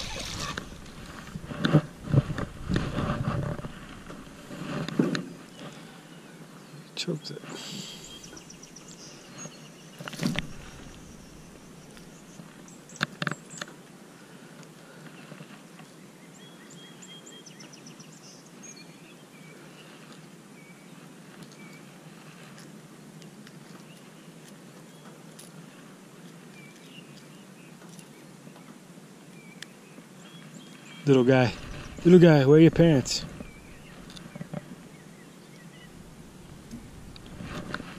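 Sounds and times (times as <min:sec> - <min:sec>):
small birds chirping: 0:00.0 - 0:01.5, 0:05.2 - 0:13.8, 0:15.0 - 0:22.6, 0:23.6 - 0:37.9.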